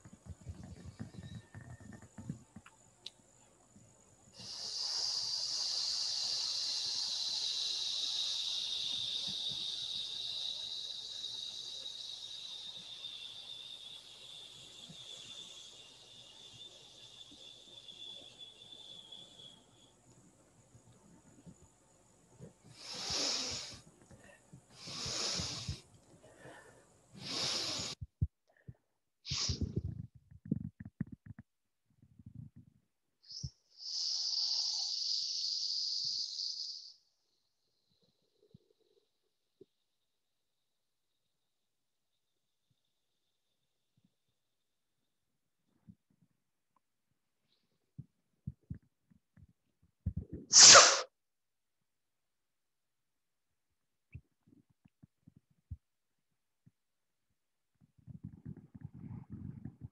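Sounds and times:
hiss breathed through teeth: 0.0s - 2.8s, 3.7s - 19.9s, 22.4s - 28.3s, 29.3s - 31.2s, 33.2s - 37.0s, 50.1s - 51.1s, 58.1s - 59.9s
man breathing deeply: 4.4s - 10.8s.

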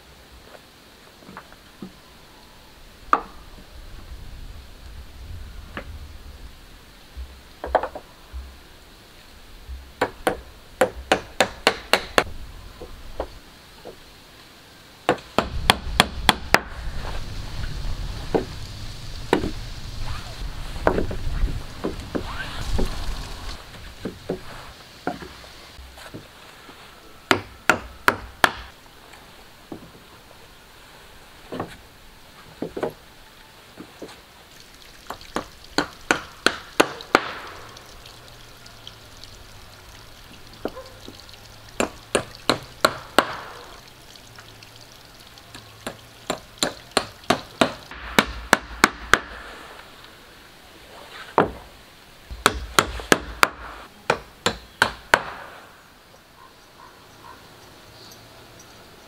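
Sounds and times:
hand tool striking wood: 10.0s - 12.3s, 45.8s - 49.4s, 52.3s - 55.6s.

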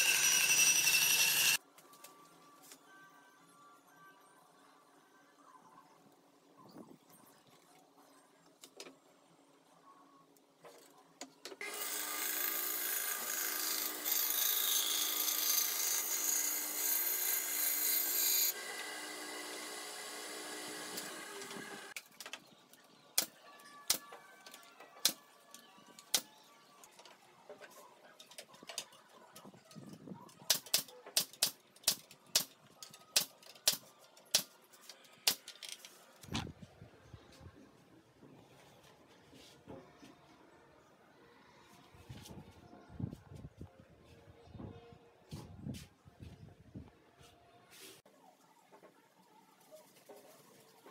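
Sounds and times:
power tool on wood: 0.0s - 1.6s, 11.6s - 22.0s.

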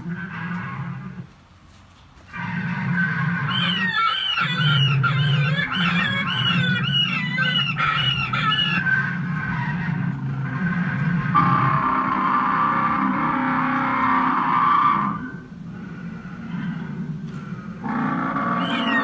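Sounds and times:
toy dinosaur low growl: 2.3s - 19.0s
high chirping squawks: 2.4s - 10.0s, 17.8s - 19.0s.

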